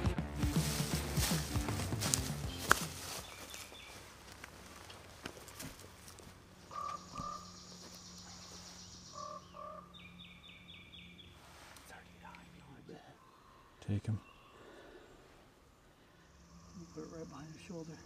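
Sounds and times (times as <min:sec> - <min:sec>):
two-note bird calls: 0:06.7 - 0:11.3.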